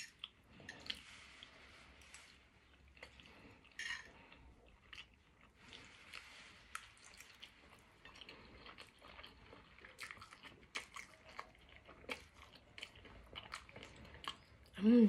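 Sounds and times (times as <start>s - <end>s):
person chewing noodles: 0.0s - 14.8s.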